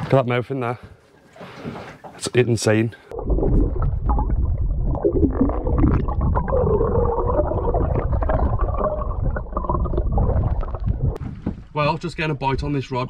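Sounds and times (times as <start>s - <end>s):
water gurgling and bubbling: 3.1s - 11.2s
underwater rumble of water: 3.1s - 11.6s.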